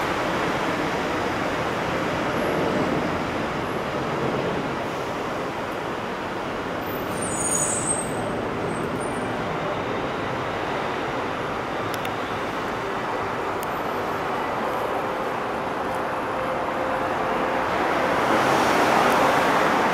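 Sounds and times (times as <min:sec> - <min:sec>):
train rumble on elevated track: 0:00.0 - 0:19.9
high wheel squeal: 0:06.8 - 0:09.3.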